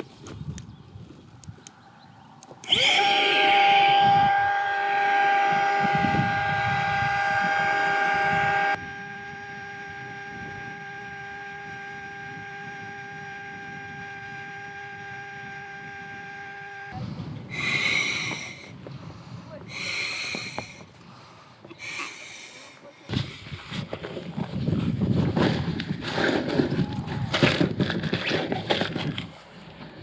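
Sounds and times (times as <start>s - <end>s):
electric inflation pump humming: 2.6s - 18.7s.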